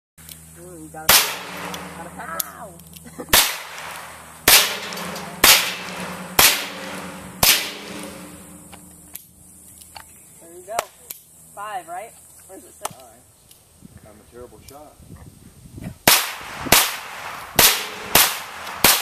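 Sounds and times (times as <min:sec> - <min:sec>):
handgun shots: 0:01.1 - 0:02.0, 0:03.3 - 0:08.2, 0:16.1 - 0:19.0.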